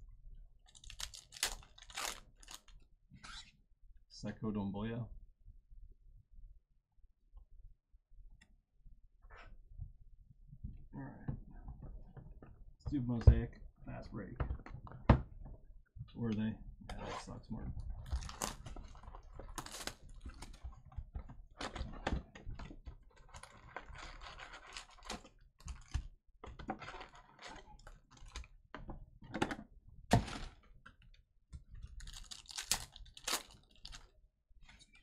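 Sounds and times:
foil packs crinkling: 0:00.7 - 0:02.7, 0:18.0 - 0:20.6, 0:23.2 - 0:25.9, 0:32.0 - 0:34.1.

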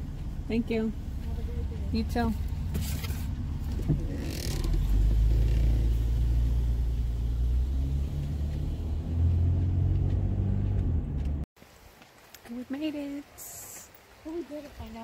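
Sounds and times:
car engine and road rumble: 0:00.0 - 0:11.5.

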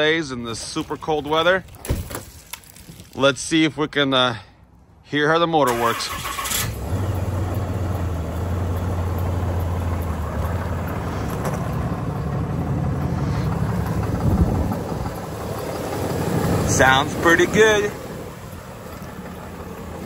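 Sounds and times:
diesel engine starting and idling: 0:05.6 - 0:20.0.

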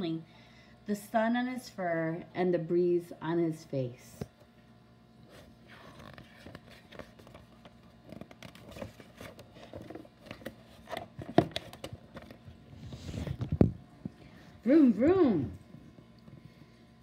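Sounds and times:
book pages turning: 0:05.2 - 0:13.7.

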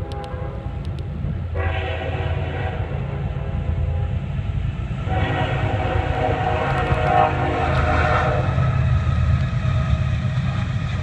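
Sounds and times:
locomotive horn chord: 0:00.0 - 0:00.8, 0:01.5 - 0:04.3, 0:05.0 - 0:08.8
locomotive rumble: 0:00.0 - 0:11.0.

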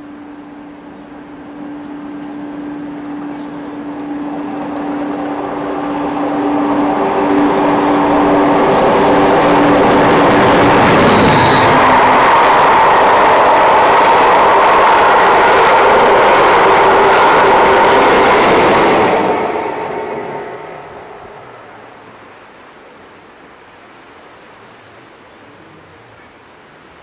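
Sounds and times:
diesel locomotive engine: 0:00.0 - 0:22.8
train coaches rumbling and rattling: 0:00.7 - 0:22.3
high squeal: 0:02.0 - 0:15.4.

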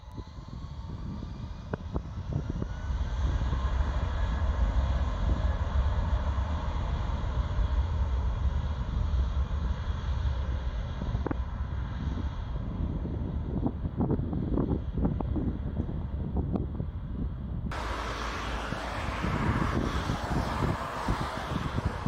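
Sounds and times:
deep steady rumble: 0:00.0 - 0:22.0
jet engines spooling up: 0:17.7 - 0:22.0.

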